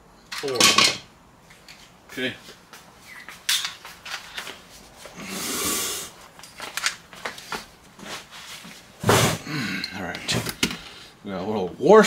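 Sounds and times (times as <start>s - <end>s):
rustling scrape: 7.4s - 9.4s.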